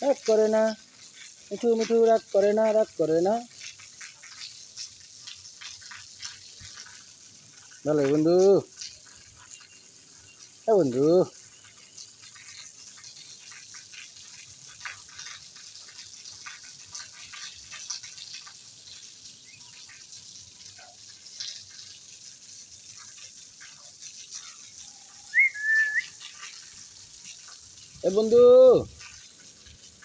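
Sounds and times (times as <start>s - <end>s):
faint steady hiss: 0.0s - 30.0s
short rising whistle: 25.3s - 26.1s.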